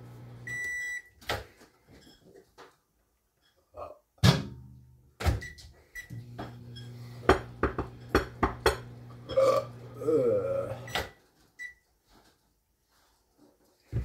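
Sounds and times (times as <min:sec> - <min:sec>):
kitchen appliance humming: 0:00.0 - 0:00.7, 0:06.1 - 0:11.1
kitchenware clinking: 0:06.4 - 0:09.5.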